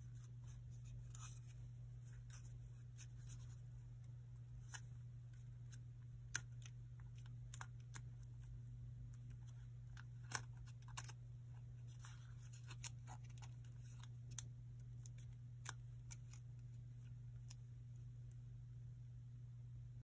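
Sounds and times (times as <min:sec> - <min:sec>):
paper crinkle: 0:00.0 - 0:16.7
steady low hum: 0:00.0 - 0:20.0
paper folding clicks: 0:04.6 - 0:11.2, 0:11.8 - 0:16.7.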